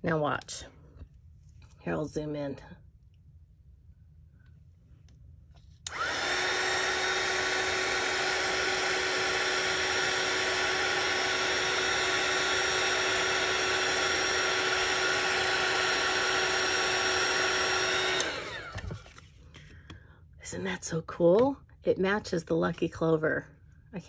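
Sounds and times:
heat tool fan rushing: 0:05.8 - 0:19.2.

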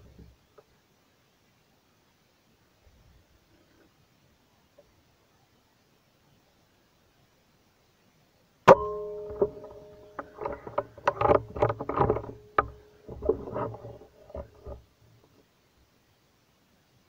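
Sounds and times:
metallic ring: 0:08.7 - 0:14.8
rustling and knocking: 0:08.7 - 0:15.5.

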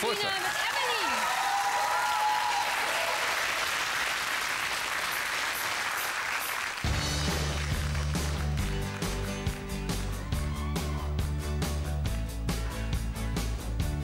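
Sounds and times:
audience applauding: 0:00.0 - 0:12.3
band playing bass and drums: 0:06.9 - 0:14.0.

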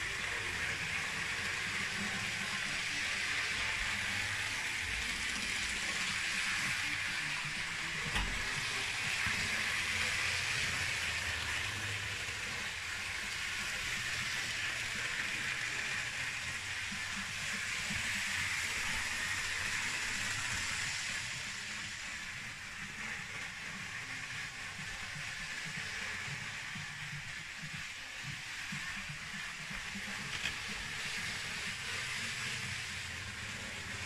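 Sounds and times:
model train whirring: 0:00.0 - 0:34.0.

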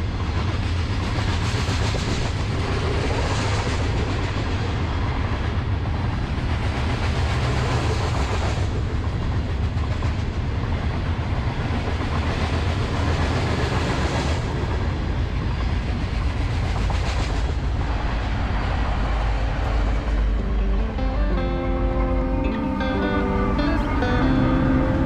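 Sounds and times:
train wheels clattering on rail: 0:00.0 - 0:20.2
diesel locomotives passing: 0:00.0 - 0:25.0.

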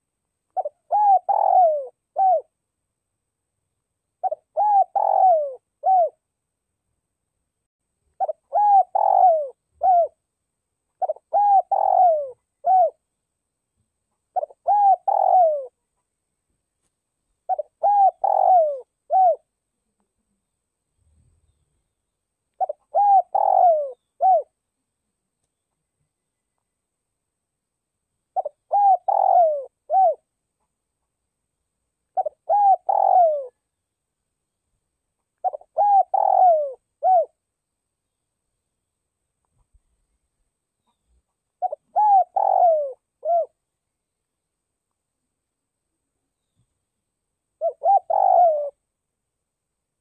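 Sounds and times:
dove cooing: 0:00.6 - 0:02.6, 0:04.2 - 0:06.2, 0:08.2 - 0:10.2, 0:11.0 - 0:13.0, 0:14.3 - 0:15.8, 0:17.5 - 0:19.5, 0:22.6 - 0:24.6, 0:28.4 - 0:30.2, 0:32.2 - 0:33.6, 0:35.4 - 0:37.4, 0:41.6 - 0:43.6, 0:47.6 - 0:48.8.

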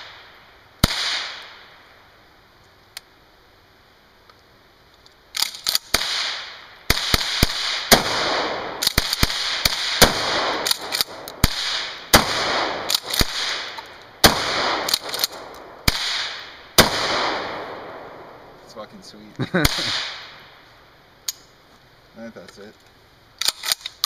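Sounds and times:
gunshots echoing: 0:00.8 - 0:01.7, 0:05.8 - 0:18.4, 0:19.6 - 0:20.5.

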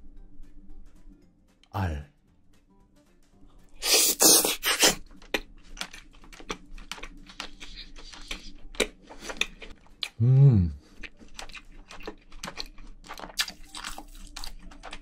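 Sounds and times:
noisy intake of a bite: 0:03.8 - 0:05.0
wet chewing clicks and smacks: 0:04.8 - 0:10.2, 0:10.9 - 0:15.0.

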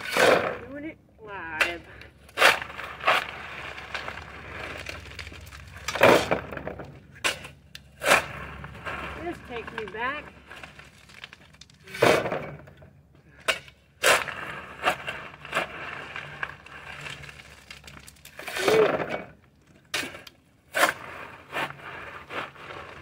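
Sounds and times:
shovel scraping rocks: 0:00.0 - 0:23.0.

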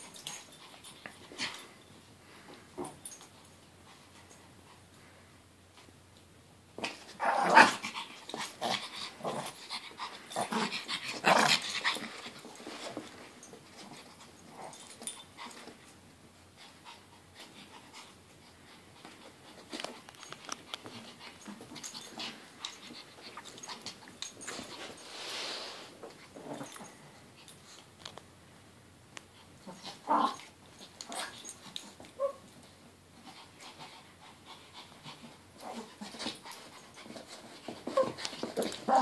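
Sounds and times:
small dogs growling: 0:06.8 - 0:12.2, 0:26.4 - 0:27.1, 0:29.6 - 0:31.4, 0:35.6 - 0:36.2, 0:38.0 - 0:39.0
dogs scuffling: 0:35.2 - 0:39.0.

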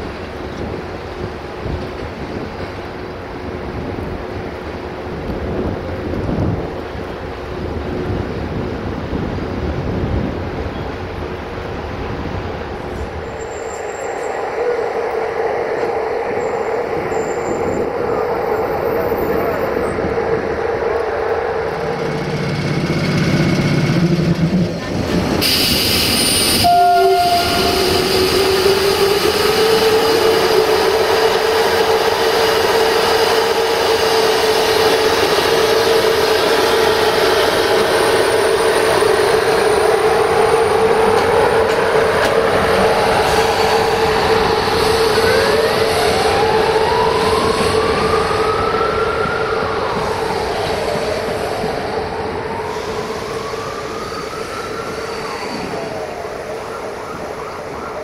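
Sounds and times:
train droning: 0:00.0 - 0:58.0.

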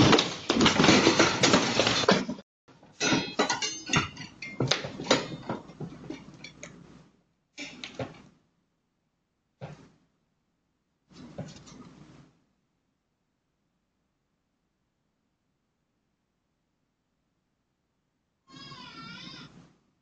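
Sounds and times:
objects clattering onto floor: 0:00.0 - 0:07.0.

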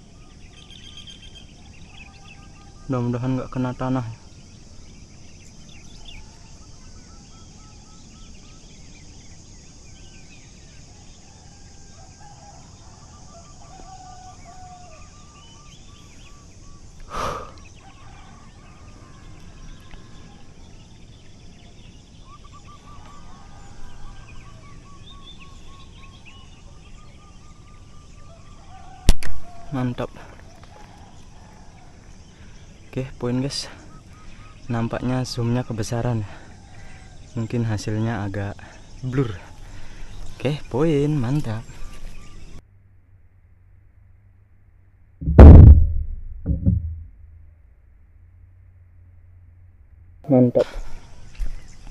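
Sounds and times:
birds calling: 0:00.0 - 0:42.6, 0:50.3 - 0:51.9
insects droning: 0:00.0 - 0:45.1, 0:46.4 - 0:51.9
short loud sound: 0:45.2 - 0:47.5.

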